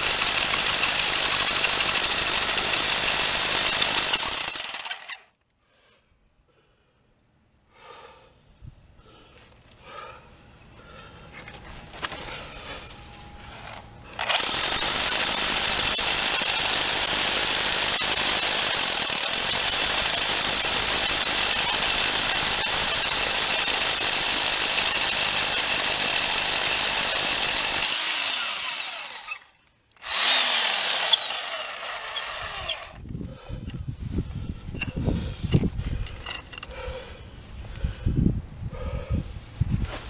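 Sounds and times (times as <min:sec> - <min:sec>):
rotary hammer drilling into concrete: 0:00.0 - 0:05.3, 0:14.2 - 0:33.1.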